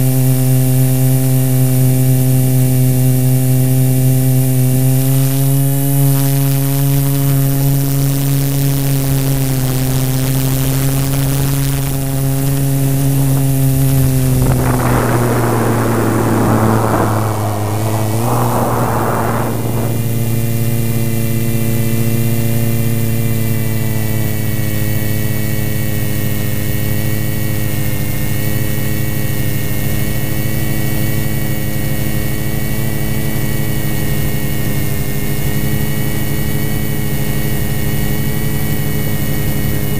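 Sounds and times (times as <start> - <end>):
rushing noise: 13.4 - 21.4.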